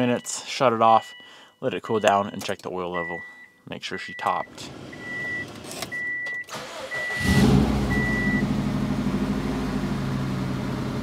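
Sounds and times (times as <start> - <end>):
high warning chime beeping: 0.0 - 5.4
car engine starting and idling: 4.5 - 11.0.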